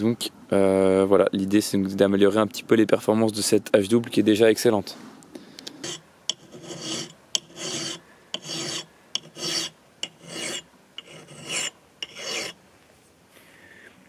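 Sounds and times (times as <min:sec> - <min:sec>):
file ticking: 0:05.6 - 0:12.6
file rasping on steel: 0:05.8 - 0:12.6.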